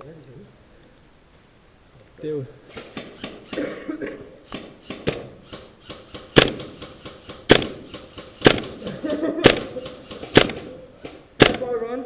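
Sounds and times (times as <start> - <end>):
airsoft rifle shots: 2.7 - 12.0.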